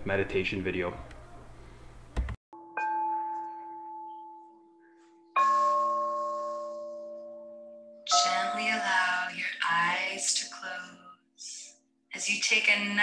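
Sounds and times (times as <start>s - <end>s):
meditation chime ringing: 2.6s - 9.4s.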